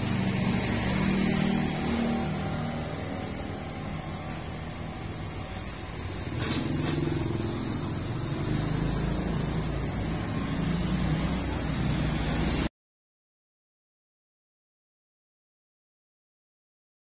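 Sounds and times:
vehicle engine running: 0:00.0 - 0:12.7.

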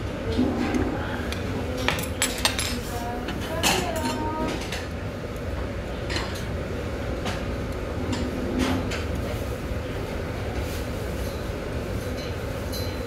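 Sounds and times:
room noise rumble: 0:00.0 - 0:12.6
metal utensils clinking on dishes: 0:01.3 - 0:04.9, 0:11.2 - 0:13.0.

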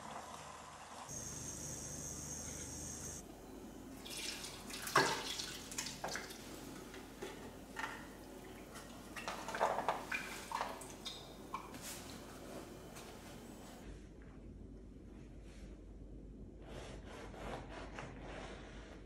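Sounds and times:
milk pouring and splashing: 0:04.0 - 0:11.7.

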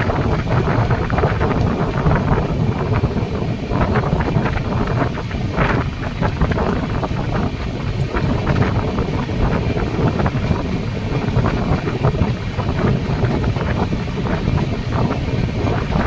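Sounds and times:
train rushing rumble: 0:00.0 - 0:16.0
wind buffeting microphone: 0:00.0 - 0:16.0.

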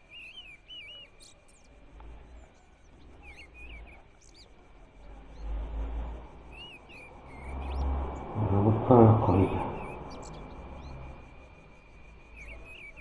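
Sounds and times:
small birds chirping: 0:00.0 - 0:13.0
low rumble: 0:07.1 - 0:11.4.

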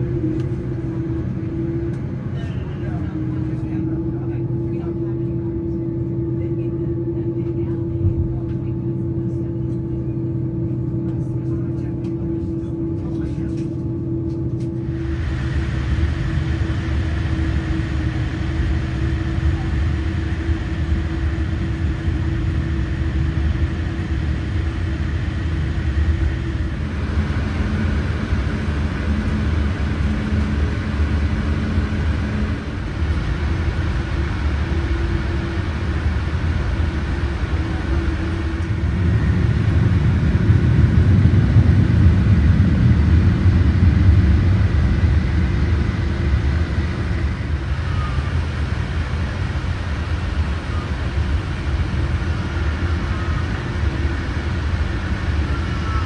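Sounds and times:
jet engines idling: 0:00.0 - 0:56.0.

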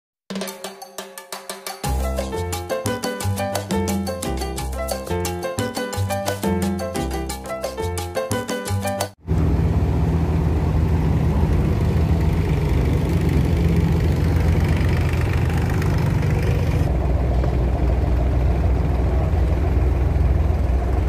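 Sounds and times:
boat diesel engine humming: 0:09.2 - 0:21.0.

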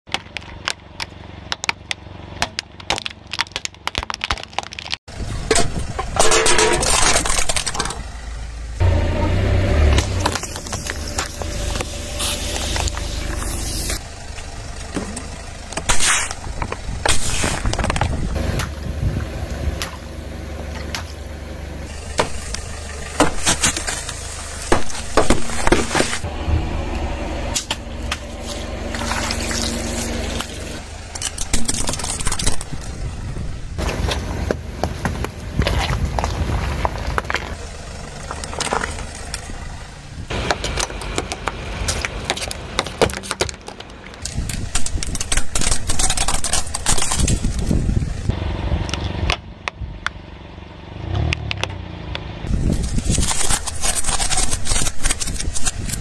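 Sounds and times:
car running: 0:00.1 - 0:56.0
plastic toy cracking under tyre: 0:01.5 - 0:05.0, 0:31.2 - 0:32.8, 0:40.5 - 0:47.8, 0:52.6 - 0:56.0
water splashing: 0:28.4 - 0:30.6
drink can crunching under tyre: 0:31.1 - 0:33.0, 0:40.4 - 0:48.0, 0:52.5 - 0:56.0
plastic toy cracking: 0:42.0 - 0:47.8.

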